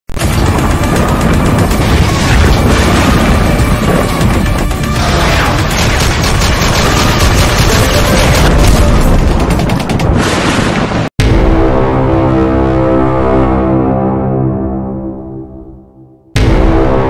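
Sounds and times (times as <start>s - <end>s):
loud intro music: 0.2s - 10.1s, 11.2s - 17.0s
rapid gunfire: 0.2s - 10.8s
heavy booms: 0.2s - 12.4s.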